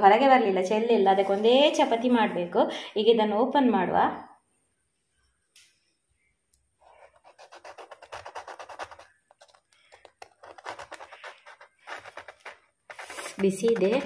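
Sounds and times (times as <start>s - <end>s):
knife sawing crisp crust: 7.0s - 14.0s.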